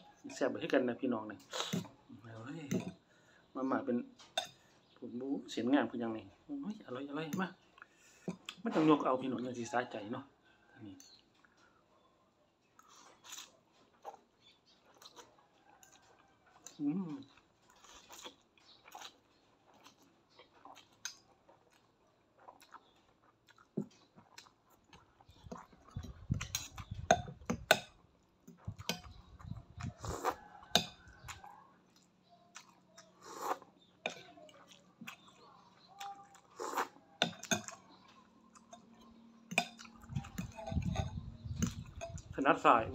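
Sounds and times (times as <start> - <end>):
person slurping and chewing noodles: 12.8 - 42.3
cutlery clinking on ceramic bowl: 30.7 - 31.1, 37.2 - 37.8, 38.6 - 41.2.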